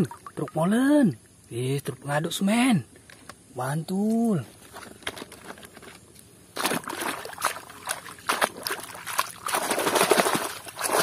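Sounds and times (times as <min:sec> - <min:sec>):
water splashing and sloshing: 0:00.0 - 0:01.5, 0:04.6 - 0:11.0
light plastic clatter: 0:04.6 - 0:06.1.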